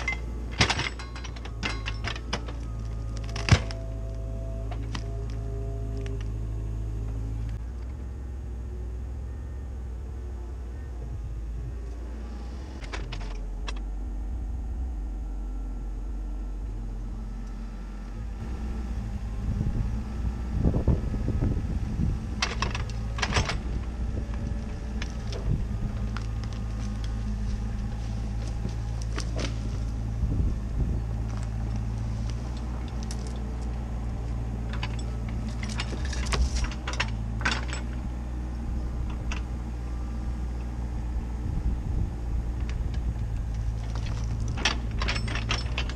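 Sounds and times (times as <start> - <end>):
knocks and clunks: 0.0 - 5.2, 22.4 - 29.9, 32.6 - 38.0, 42.5 - 45.9
excavator diesel engine running: 0.0 - 45.9
wood and branches cracking: 1.5 - 5.4, 24.3 - 30.0.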